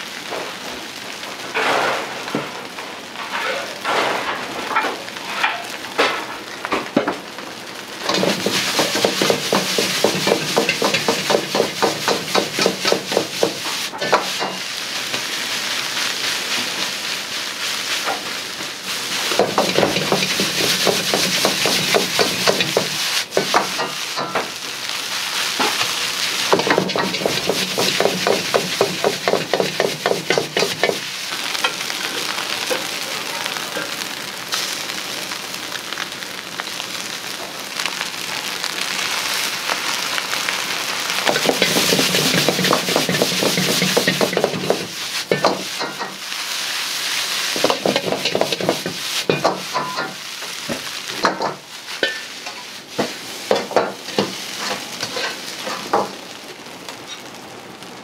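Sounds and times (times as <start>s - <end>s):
rice sizzling in a wok: 0.0s - 58.0s
metal ladle scraping a wok: 41.3s - 46.1s, 53.6s - 55.9s.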